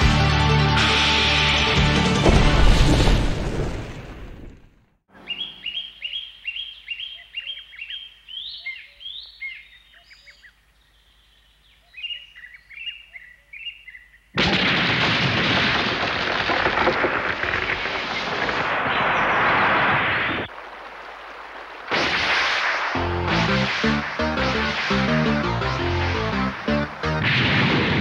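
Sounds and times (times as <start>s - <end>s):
music: 0.0s - 2.8s, 23.0s - 27.4s
bird chirping: 5.1s - 14.3s
loud rushing noise: 21.9s - 28.0s.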